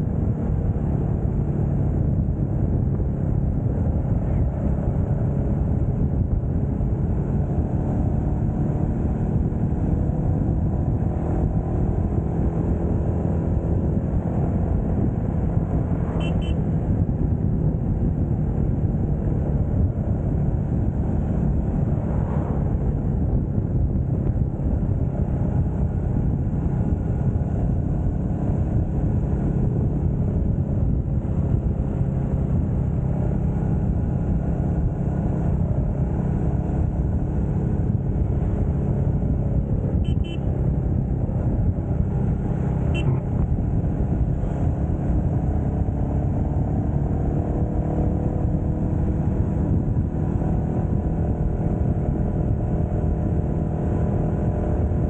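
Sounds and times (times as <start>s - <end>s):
motorcycle engine cruising: 0.0s - 55.0s
horn toots: 16.1s - 16.7s, 40.0s - 40.6s, 42.9s - 43.4s.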